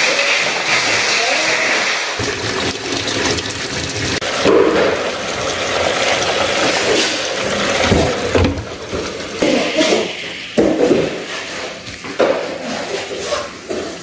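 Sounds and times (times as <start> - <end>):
water rushing into washing machine: 0.0 - 10.2
powder being poured: 2.2 - 9.4.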